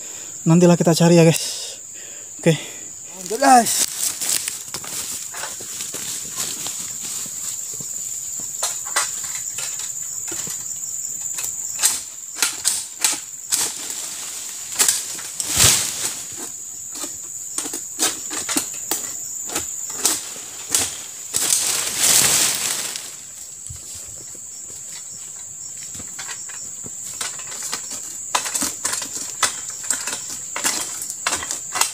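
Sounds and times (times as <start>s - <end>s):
insects droning: 0.0s - 31.9s
rustling: 3.1s - 7.9s, 13.5s - 17.2s, 19.9s - 24.1s.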